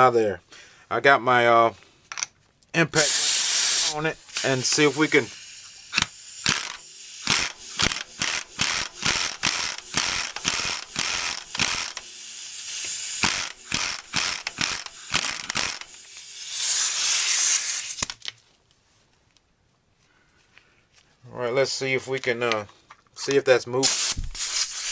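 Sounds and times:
compressed air hissing: 2.9 - 18.1, 23.8 - 24.9
air valve click: 3.0 - 12.1
pneumatic impact wrench hammering: 3.0 - 18.2, 23.8 - 24.9.

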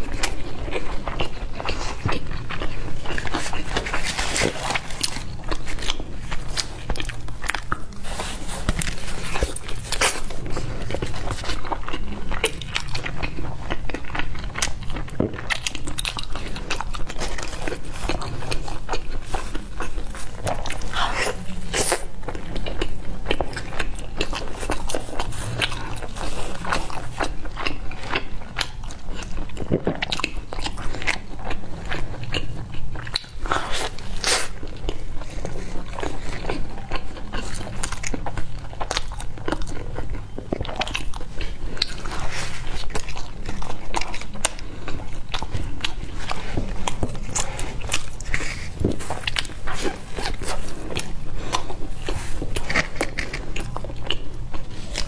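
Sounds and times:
biting and chewing pizza: 0.0 - 55.0.

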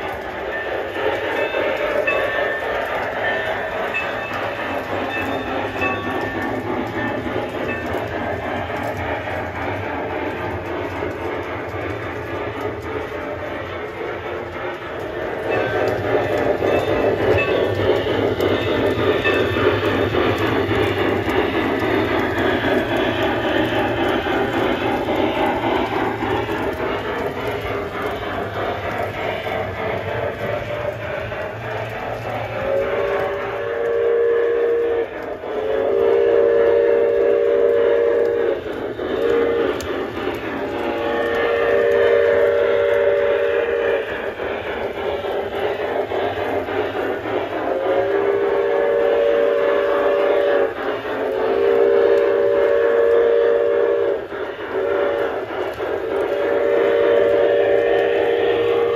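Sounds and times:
model steam locomotive running: 0.0 - 58.9
model train steam whistle: 32.6 - 39.9, 40.7 - 44.4, 47.7 - 58.9.

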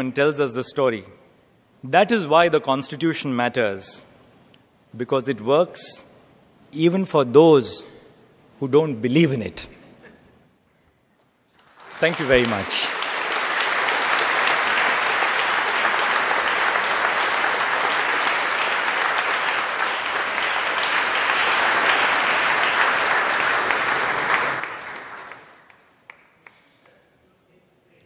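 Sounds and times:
audience applauding: 11.6 - 26.9.

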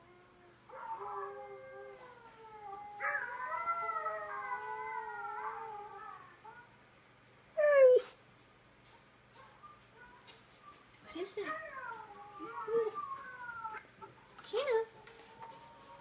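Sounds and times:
dog howling: 0.2 - 6.8, 11.4 - 14.1.

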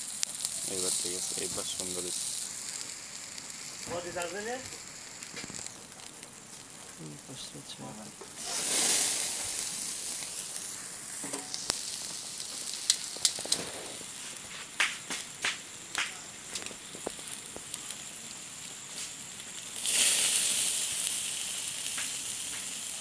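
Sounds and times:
fish sizzling on a grill: 0.0 - 23.0
sharp pops and clicks: 1.4 - 7.0, 10.1 - 18.1, 21.8 - 22.8.

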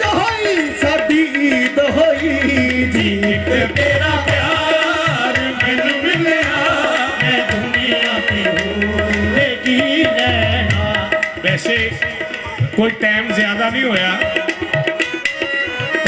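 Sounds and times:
people singing: 0.0 - 12.4
harmonium melody: 0.0 - 16.0
tabla drumming: 0.0 - 16.0.

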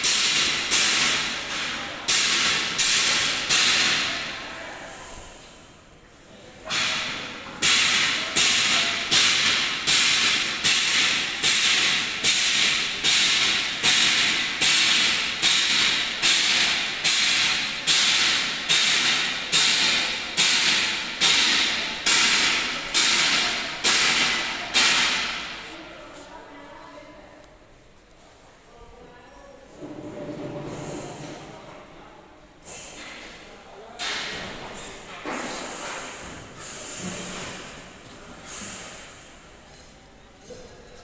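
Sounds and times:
machine hissing: 38.4 - 39.3.

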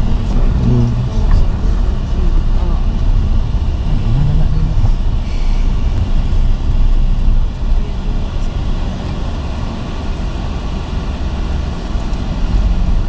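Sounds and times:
vehicle rolling over gravel: 0.0 - 7.8.

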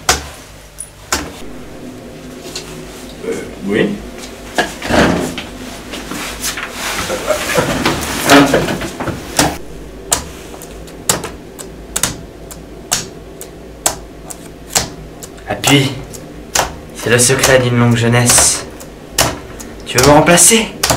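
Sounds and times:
rustling and shuffling: 0.2 - 9.6.

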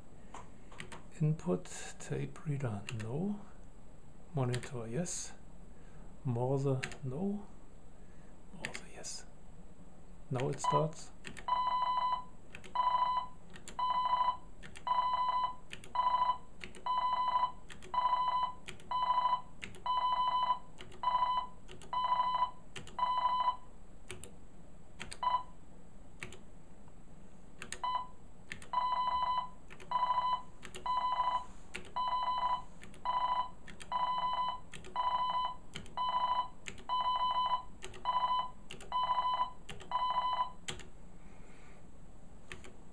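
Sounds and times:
morse code beeps: 11.5 - 23.6, 27.8 - 28.1, 28.8 - 40.6.

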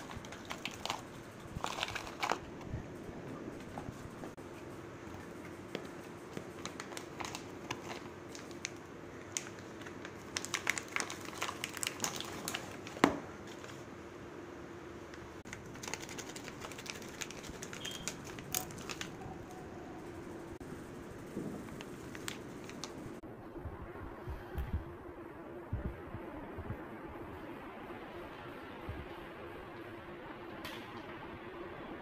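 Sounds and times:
plastic packaging crinkling: 0.0 - 2.6, 6.4 - 13.9, 15.5 - 19.9, 21.6 - 23.2.

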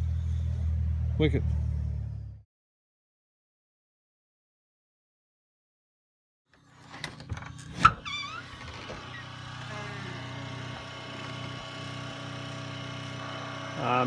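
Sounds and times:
short squeak: 7.7 - 9.4
small engine idling: 8.0 - 14.0.

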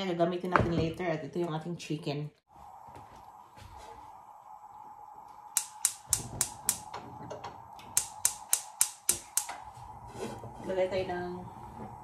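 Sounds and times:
gas stove igniter clicking: 5.5 - 9.6.

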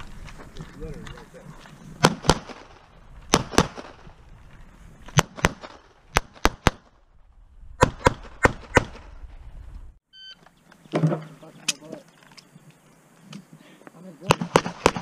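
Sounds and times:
pistol shots: 2.0 - 4.0, 5.1 - 6.9, 14.3 - 15.0.

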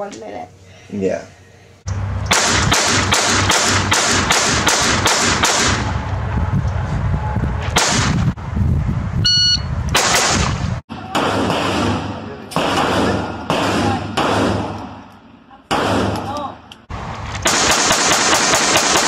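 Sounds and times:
pistol shots: 2.3 - 5.9, 10.0 - 15.0, 15.7 - 16.3, 17.4 - 19.0.

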